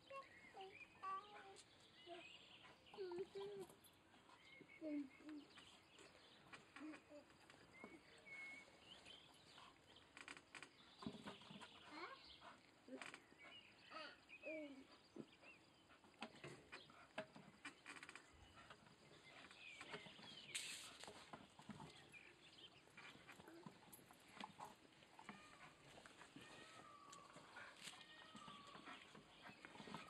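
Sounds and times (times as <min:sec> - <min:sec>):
dog whining: 0:24.6 - 0:30.0.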